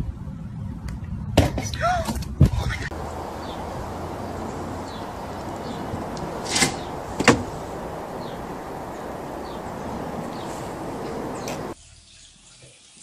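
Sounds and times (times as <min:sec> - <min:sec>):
faint bird chirps: 0:02.9 - 0:11.8
outdoor hiss: 0:02.9 - 0:13.0.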